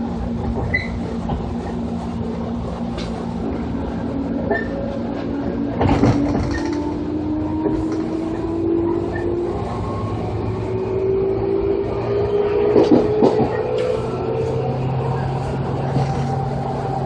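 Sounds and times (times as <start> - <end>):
wheels rumbling on rail: 0.0 - 17.0
electric train motors whining: 3.8 - 17.0.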